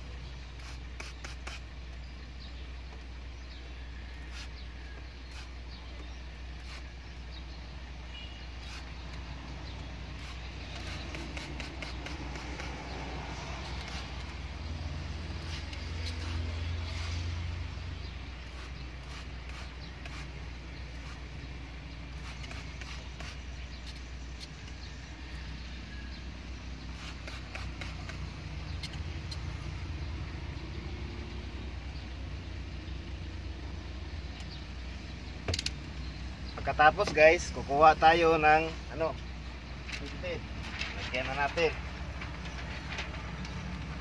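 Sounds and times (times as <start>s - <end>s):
blade scraping glass: 8.2s - 14.4s, 15.1s - 17.5s, 22.1s - 24.5s.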